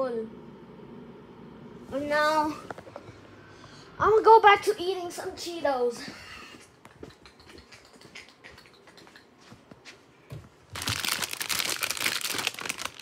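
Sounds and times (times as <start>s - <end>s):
chip bag crinkling: 10.7s - 13.0s.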